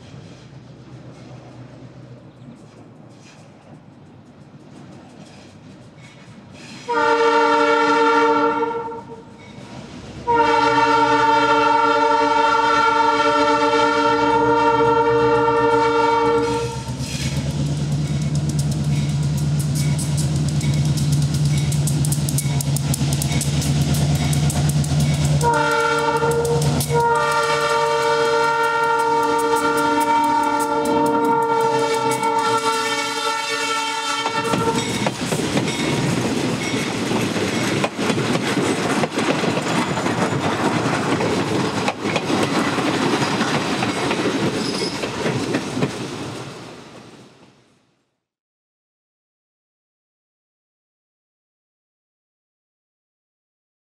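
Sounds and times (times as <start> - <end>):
train wheels clicking on rail joints: 0.0 - 7.0, 16.6 - 33.2, 33.9 - 47.1
locomotive air horn blasts: 6.9 - 9.4, 10.3 - 17.0, 25.4 - 35.0.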